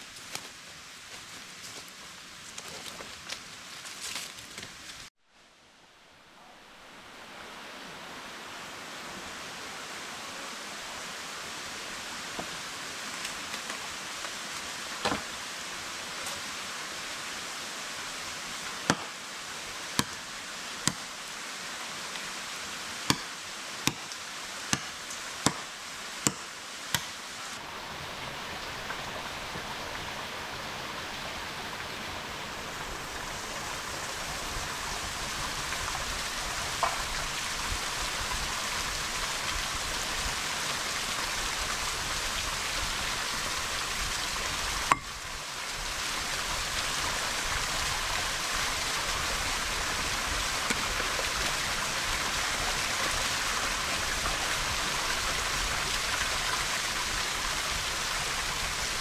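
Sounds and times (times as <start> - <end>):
rushing water: 6.7 - 59.0
sharp knocks: 23.1 - 23.3.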